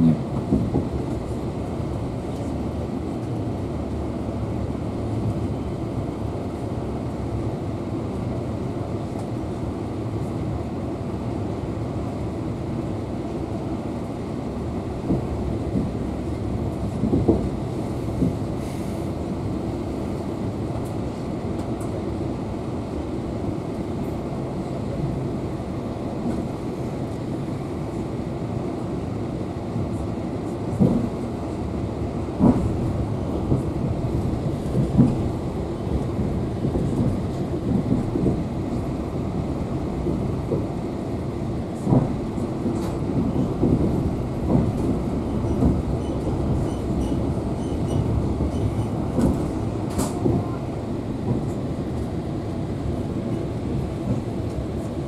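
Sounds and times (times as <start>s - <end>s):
train carriage rumble: 0.0s - 55.0s
sharp knocks from train wheels: 30.7s - 31.2s, 32.3s - 35.3s, 41.8s - 50.6s.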